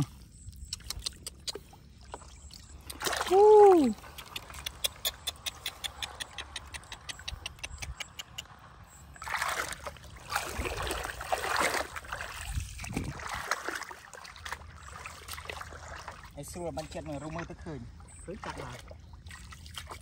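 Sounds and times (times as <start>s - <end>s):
water splashing in shallows: 0.0s - 20.0s
quick evenly spaced ticks: 0.5s - 1.7s, 4.0s - 8.6s.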